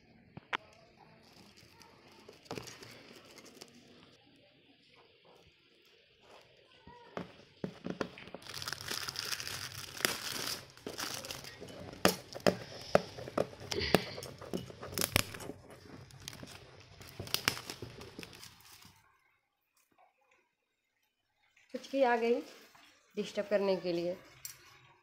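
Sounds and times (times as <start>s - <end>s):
wrapping paper crinkling and tearing: 1.2s - 4.1s, 6.2s - 19.1s.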